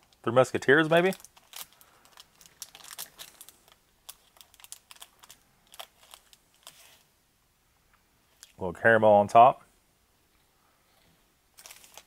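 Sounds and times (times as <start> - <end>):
foil wrapper crinkling: 0.1 - 7.1, 11.6 - 12.0.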